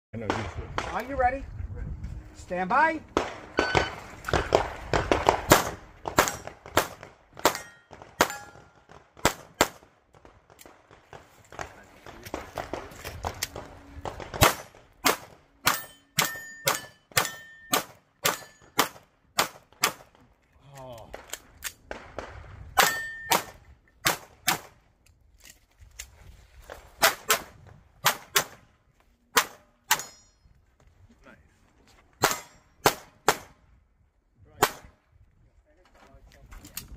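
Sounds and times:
pistol shots: 0:03.2 - 0:20.1, 0:32.2 - 0:33.6.

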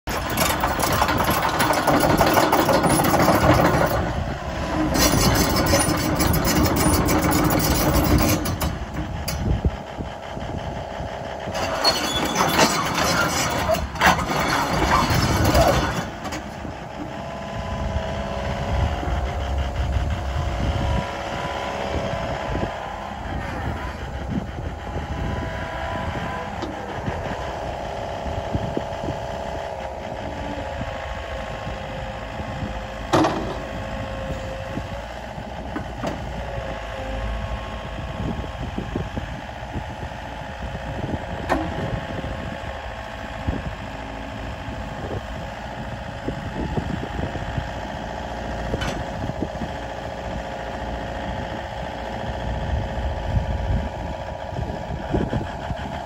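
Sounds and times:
excavator diesel engine: 0:00.0 - 0:56.0
hydraulic whine: 0:00.1 - 0:43.8.

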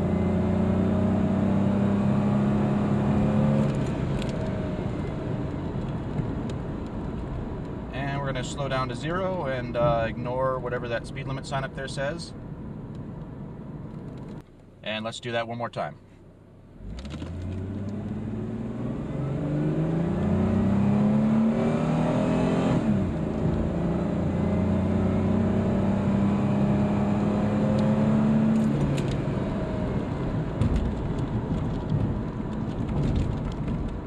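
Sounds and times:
car engine accelerating: 0:00.0 - 0:08.8, 0:16.7 - 0:34.0.

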